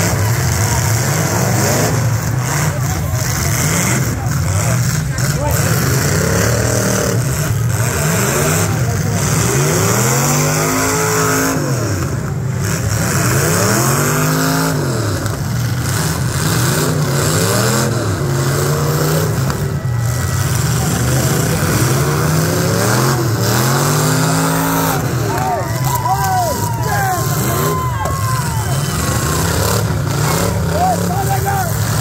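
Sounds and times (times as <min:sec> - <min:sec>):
car engines revving hard: 0:00.0 - 0:32.0.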